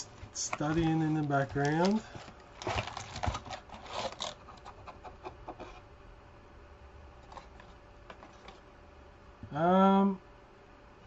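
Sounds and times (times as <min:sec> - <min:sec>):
faint handling noise: 0:00.0 - 0:05.8, 0:07.2 - 0:08.7
cardboard box rustling and tapping: 0:00.2 - 0:05.7.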